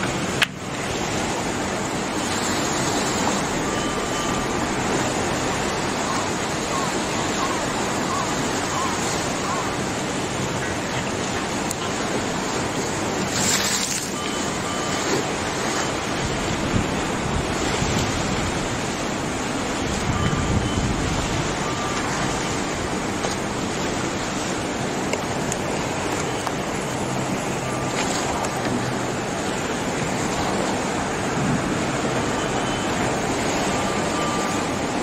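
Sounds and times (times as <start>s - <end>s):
water rushing and churning: 0.0s - 35.0s
wind buffeting microphone: 14.6s - 32.4s.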